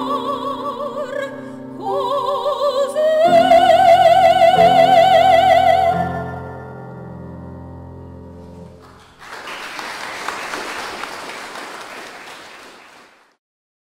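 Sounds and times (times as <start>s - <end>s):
audience applause: 8.8s - 13.4s.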